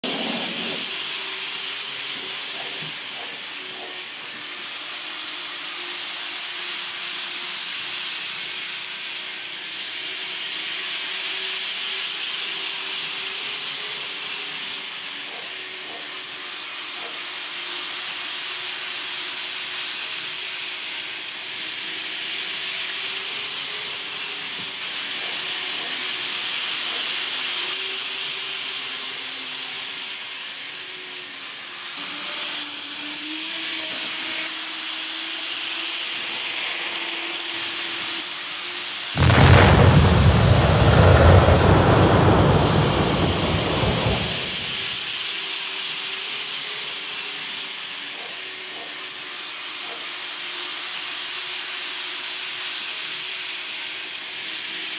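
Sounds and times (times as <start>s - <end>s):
model trains hissing whir: 0.0s - 54.9s.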